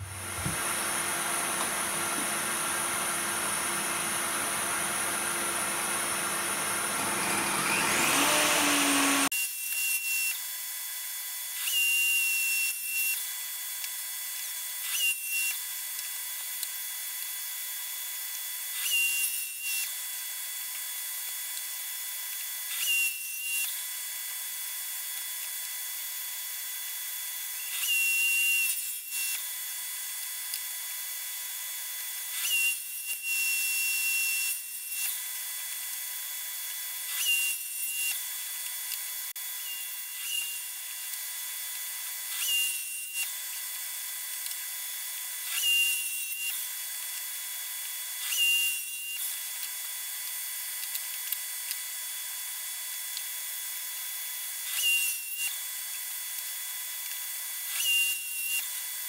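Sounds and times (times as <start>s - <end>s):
table saw blade spinning: 0.0s - 10.3s
saw whine cutting wood: 0.0s - 59.0s.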